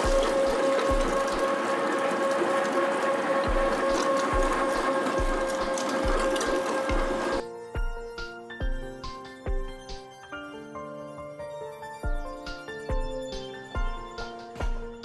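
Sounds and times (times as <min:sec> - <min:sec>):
meat grinder motor whine: 0:00.0 - 0:09.8.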